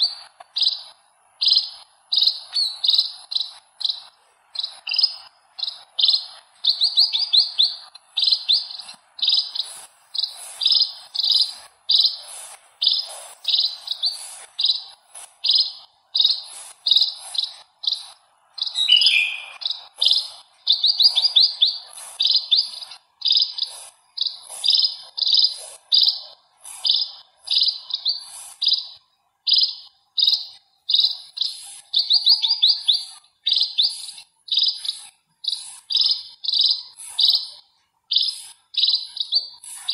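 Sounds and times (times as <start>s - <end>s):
sparrow chirping: 0.0s - 39.9s
low falling bird call: 18.8s - 19.6s.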